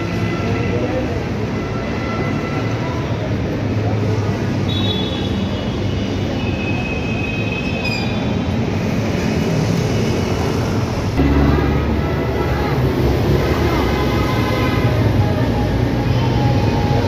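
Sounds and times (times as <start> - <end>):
city traffic rumble: 0.0 - 17.0.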